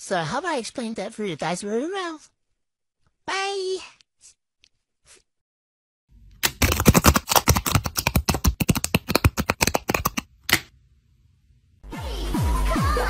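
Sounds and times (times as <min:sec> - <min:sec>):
paper crackling and rustling: 0:06.4 - 0:10.2.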